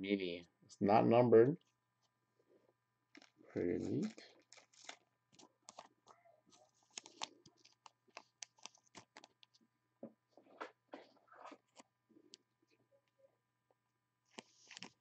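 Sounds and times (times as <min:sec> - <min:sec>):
trading card clicks and rustles: 0:03.2 - 0:09.6, 0:14.3 - 0:15.0.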